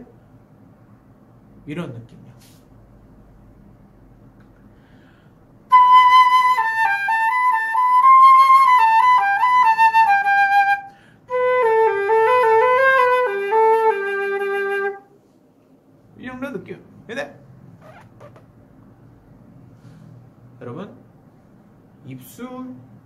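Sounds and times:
breath: 4.6s - 5.5s, 10.9s - 11.3s, 19.7s - 20.3s
solo flute melody: 5.7s - 15.1s.

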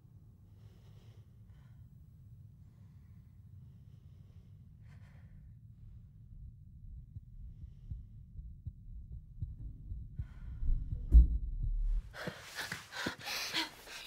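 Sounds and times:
low throbbing rumble: 5.4s - 12.2s.

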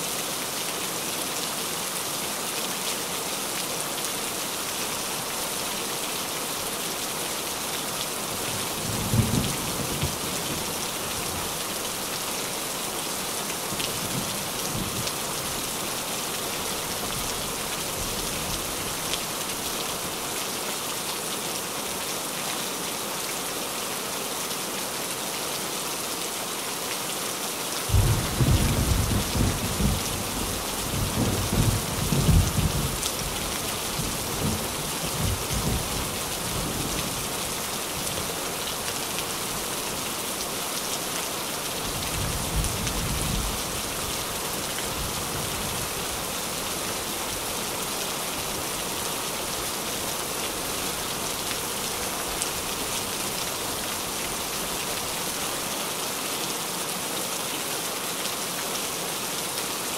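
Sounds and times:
rain on a tin roof: 0.0s - 59.9s
low rumble of thunder: 27.9s - 33.4s.

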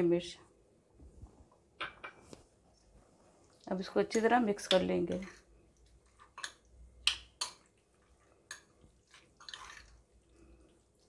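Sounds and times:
spoon scraping bowl: 4.0s - 6.7s, 7.4s - 10.4s.

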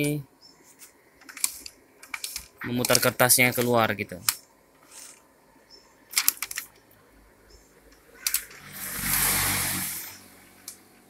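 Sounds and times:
plastic clicks: 0.8s - 5.2s, 6.1s - 6.9s, 7.9s - 8.6s
paper rustling through rollers: 8.2s - 10.6s.

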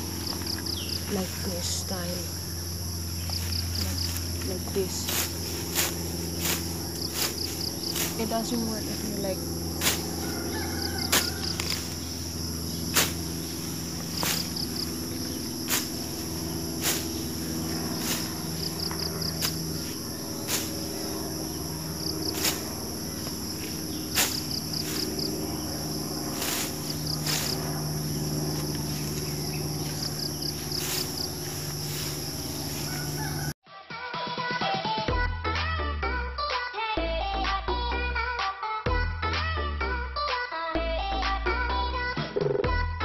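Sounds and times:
insects chirring: 0.0s - 33.6s
scythe cutting grass: 3.2s - 33.6s.

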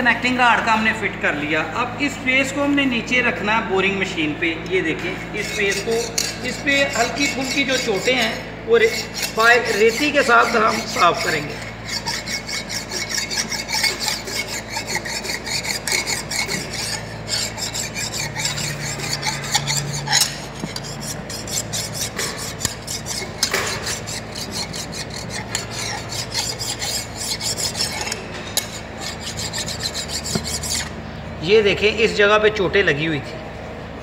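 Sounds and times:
hand file rasping on steel: 5.4s - 31.0s.

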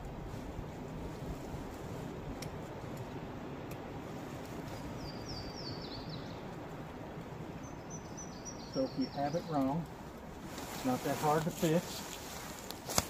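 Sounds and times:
low background rush: 0.0s - 13.0s
songbird singing: 4.6s - 12.8s.

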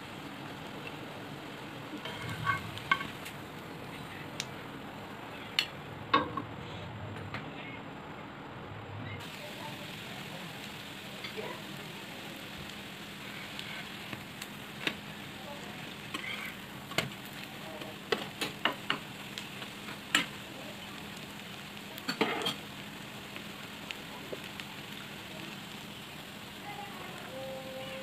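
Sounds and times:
food sizzling in oil: 0.0s - 6.5s, 9.2s - 28.0s
metal spatula scraping pan: 2.0s - 3.2s, 16.1s - 16.6s.

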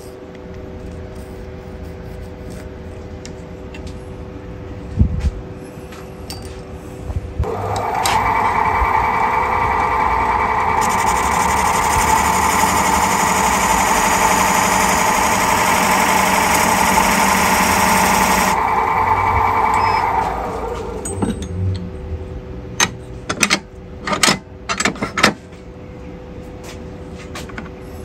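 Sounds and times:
wood lathe whining: 7.5s - 19.8s.

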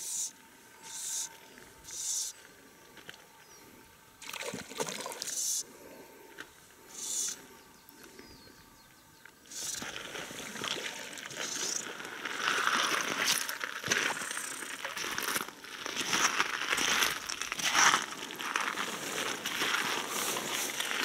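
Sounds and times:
fish splashing and thrashing: 4.2s - 5.3s, 9.7s - 15.4s
crackling rustle: 9.2s - 21.0s.

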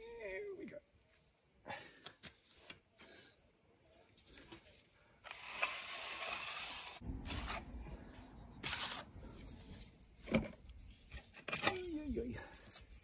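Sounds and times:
trowel scraping wet cement: 5.2s - 7.8s, 8.6s - 9.1s.

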